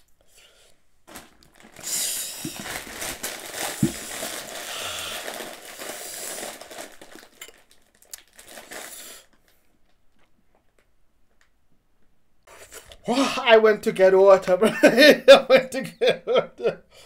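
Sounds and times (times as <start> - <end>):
plastic chip packet crinkling: 1.1 - 11.4.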